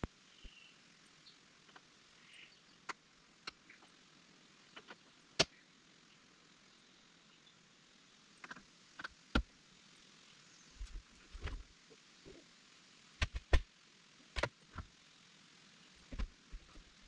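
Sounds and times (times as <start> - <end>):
sharp clicks and knocks of tools: 13.2 - 13.6.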